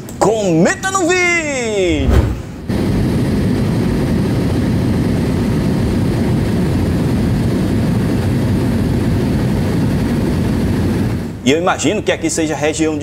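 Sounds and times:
turboprop engine cabin drone: 2.6s - 11.4s.

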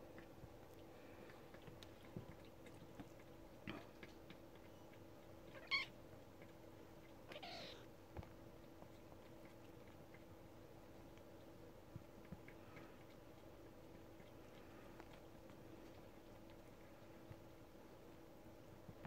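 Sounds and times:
kittens mewing: 5.5s - 5.9s, 7.3s - 7.9s.

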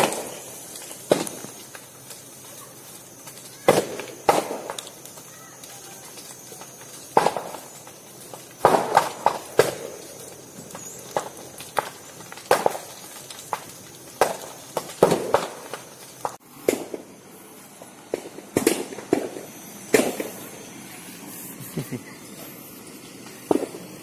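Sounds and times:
burning bamboo bursting with bangs: 0.0s - 24.0s.

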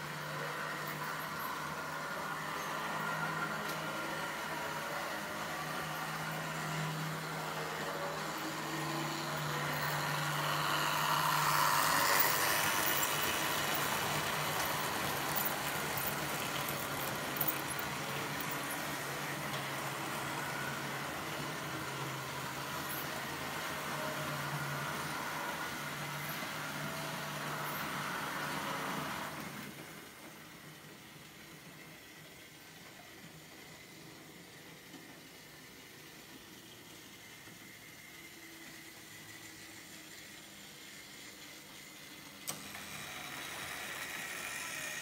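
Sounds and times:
rolling wheel noise: 0.0s - 29.8s
model train motor hum: 0.0s - 45.0s.

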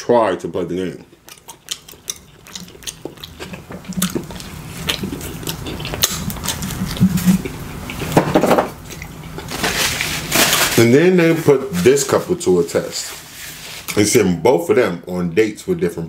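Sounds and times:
chewing and biting pizza: 1.0s - 8.2s, 8.8s - 9.9s.

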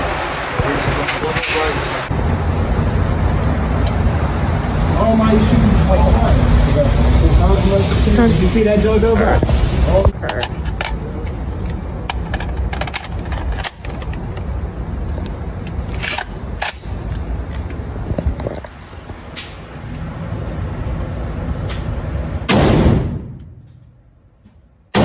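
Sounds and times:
rumbling handling noise: 9.2s - 20.2s
rifle shot with echo: 22.5s - 23.4s.

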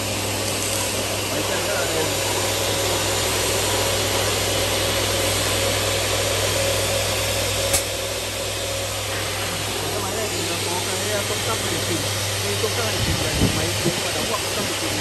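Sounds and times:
cutting saw running: 0.0s - 15.0s
sharp click: 7.7s - 7.9s.

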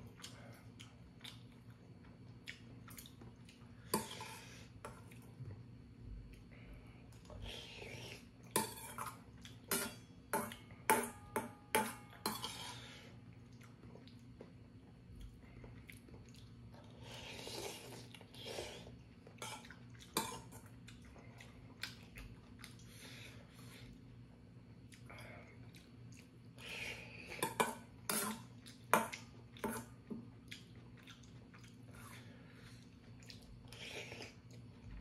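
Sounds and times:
metal utensils clinking on pot: 9.7s - 12.6s.

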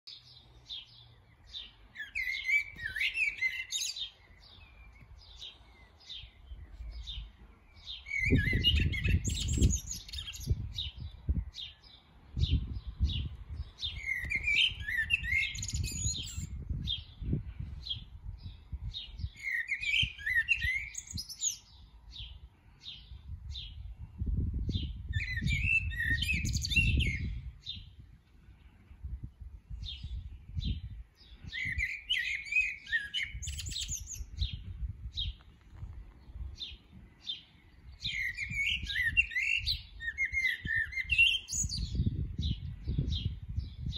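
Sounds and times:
blackbird singing: 0.0s - 35.4s, 36.1s - 43.9s.

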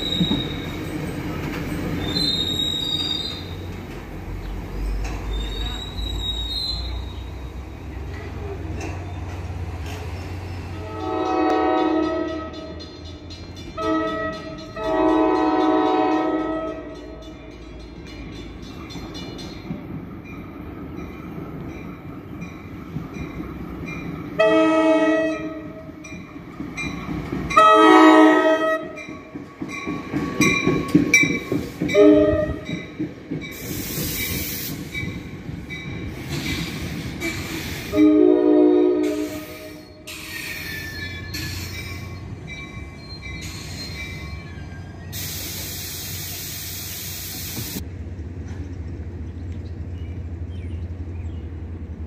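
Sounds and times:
train clattering on rails: 0.0s - 52.0s
train air horn blasts: 10.8s - 12.9s, 13.8s - 17.3s, 24.4s - 26.0s, 27.6s - 29.0s, 31.9s - 32.7s, 37.6s - 40.8s.

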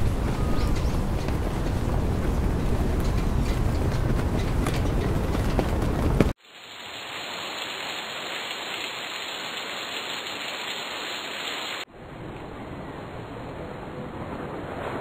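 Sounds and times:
loud rumbling with crackles: 0.0s - 6.4s, 11.9s - 15.0s
steady hiss: 6.3s - 11.8s.

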